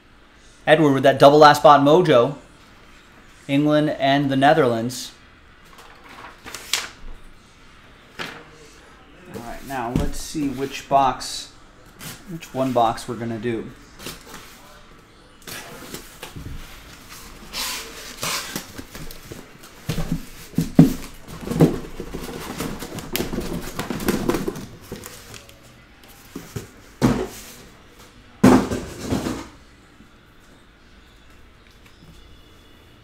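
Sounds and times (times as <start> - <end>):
cardboard and plastic wrap rustling: 5.7 - 7.1, 15.5 - 27.8.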